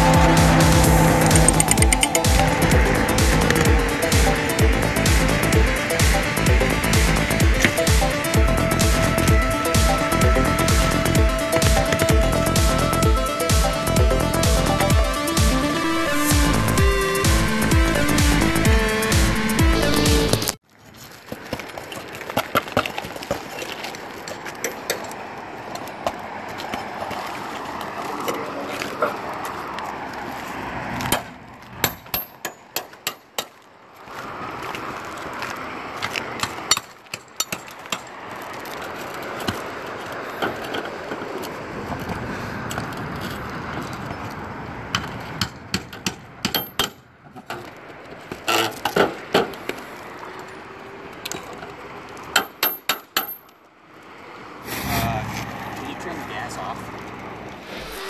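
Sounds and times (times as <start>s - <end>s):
steady rushing noise: 0.0s - 20.6s, 54.6s - 58.0s.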